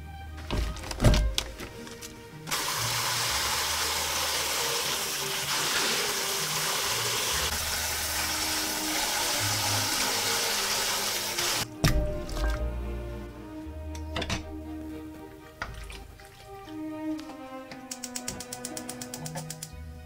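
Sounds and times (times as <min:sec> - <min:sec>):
hands rinsing chicken: 0:02.5 - 0:11.6, 0:15.6 - 0:17.4
tap water running into a bowl: 0:02.5 - 0:11.6.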